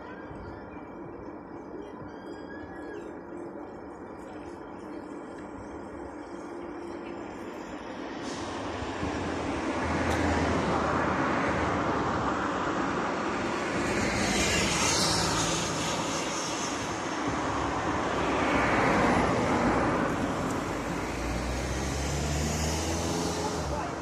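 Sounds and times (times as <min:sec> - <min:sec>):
vehicle rushing noise: 0:08.1 - 0:24.0.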